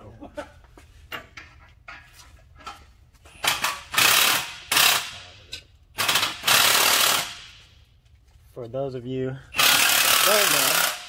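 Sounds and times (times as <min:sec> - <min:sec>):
impact wrench hammering: 0:03.3 - 0:05.3, 0:06.0 - 0:07.8, 0:09.6 - 0:11.0.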